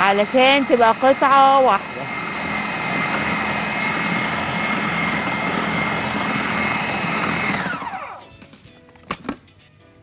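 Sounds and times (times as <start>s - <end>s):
food processor whining: 0.0s - 8.4s.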